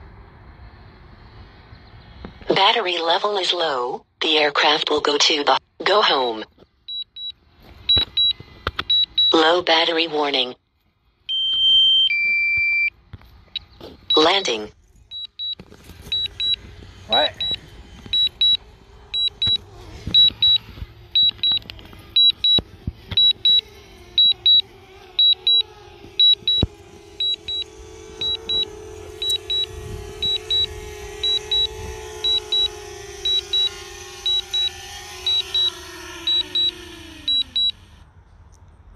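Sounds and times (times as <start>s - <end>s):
high warning beeps: 6.9s - 9.6s, 11.3s - 12.9s, 13.6s - 24.6s, 25.2s - 37.9s
drone propellers humming: 13.0s - 38.5s.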